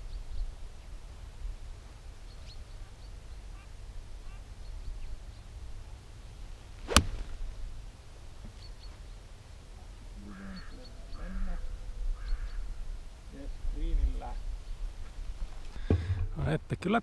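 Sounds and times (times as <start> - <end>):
golf club striking ball: 6.8 - 7.6.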